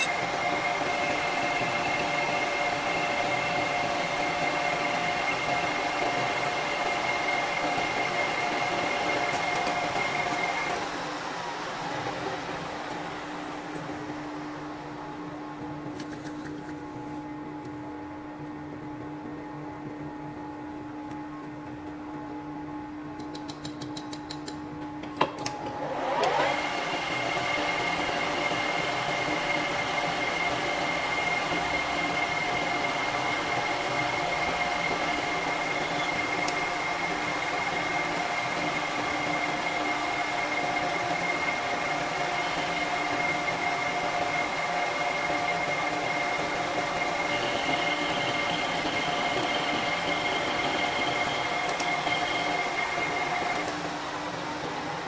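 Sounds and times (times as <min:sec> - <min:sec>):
lathe spindle whining: 0:00.0 - 0:14.8, 0:25.8 - 0:55.0
metal lathe hum: 0:26.0 - 0:54.2.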